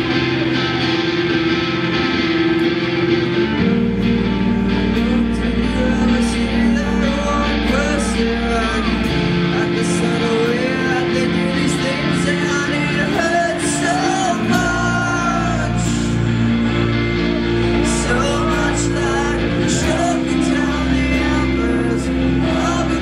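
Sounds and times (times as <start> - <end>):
deep bass: 0.0 - 23.0
electric guitars: 0.0 - 23.0
live rock band playing loud: 0.0 - 23.0
person singing into a microphone: 4.7 - 16.8, 17.7 - 23.0.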